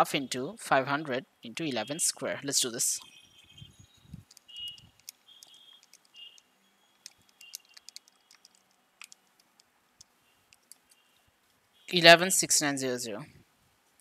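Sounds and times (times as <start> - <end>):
keys clicking: 4.2 - 11.0.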